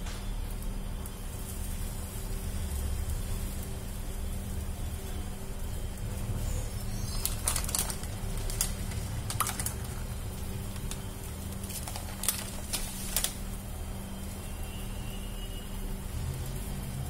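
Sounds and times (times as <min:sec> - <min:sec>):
steady low hum: 0:00.0 - 0:17.0
plastic packet crinkling: 0:06.6 - 0:13.6.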